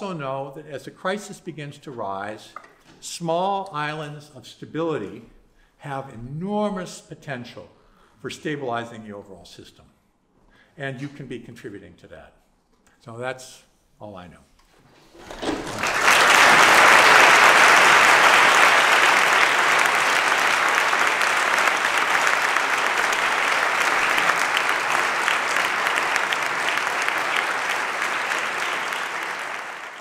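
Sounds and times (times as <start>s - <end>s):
audience applauding: 15.2s - 30.0s.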